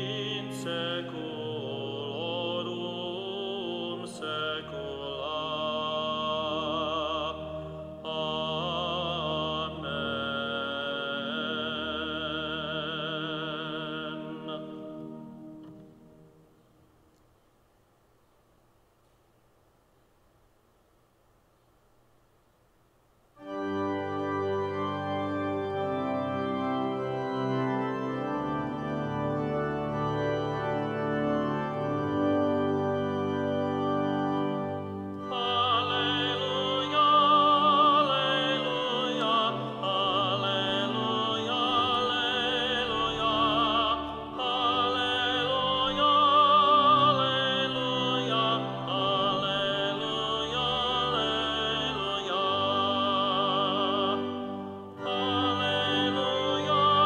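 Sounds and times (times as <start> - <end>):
solo singer with vibrato: 0.0 - 15.2, 35.2 - 57.0
organ playing held chords: 0.0 - 16.8, 23.4 - 57.0.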